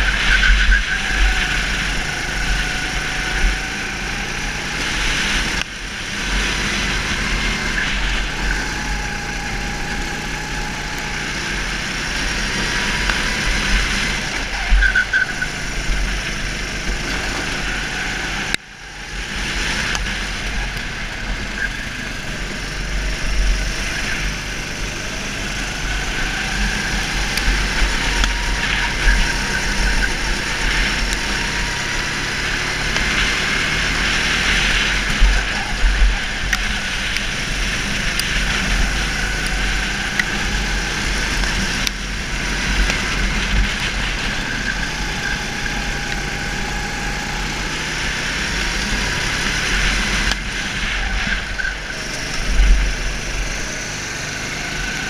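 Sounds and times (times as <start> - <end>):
go-kart engine revving: 0.0 - 55.0
wind rumbling on microphone: 0.0 - 55.0.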